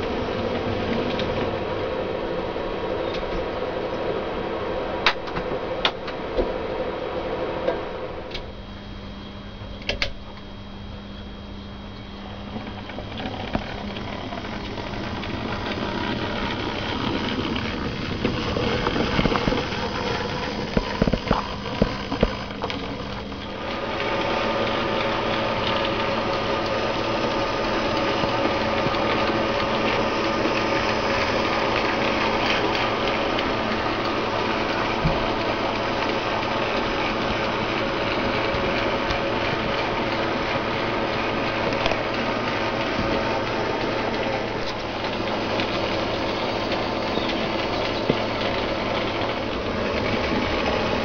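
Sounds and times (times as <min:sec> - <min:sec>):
model train motor whirring: 0:12.2 - 0:51.0
wheels clicking over rail joints: 0:12.6 - 0:51.0.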